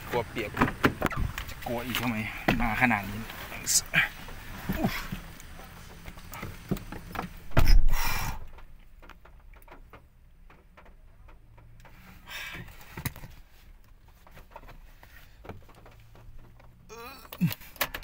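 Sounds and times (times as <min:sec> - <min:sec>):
rain hiss: 0:00.0 - 0:08.6
faint clicks and rustles: 0:00.0 - 0:18.0
rustling of person entering car: 0:00.0 - 0:18.0
car door slamming: 0:07.4 - 0:08.5.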